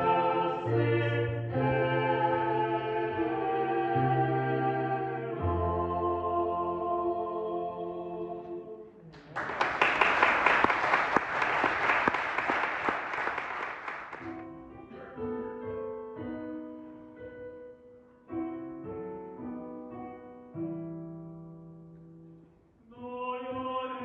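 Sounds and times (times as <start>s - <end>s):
piano playing slow chords: 0.0s - 8.8s, 14.2s - 22.7s
audience applauding: 9.1s - 14.3s.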